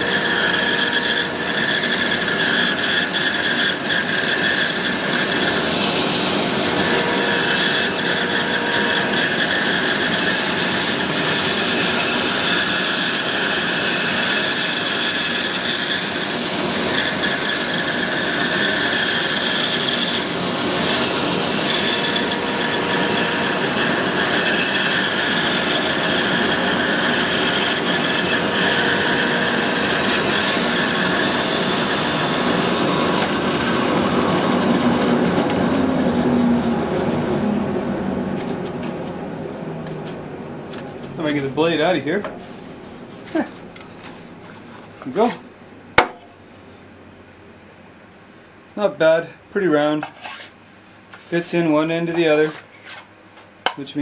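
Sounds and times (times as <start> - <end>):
bandsaw cutting wood: 0.0 - 36.4.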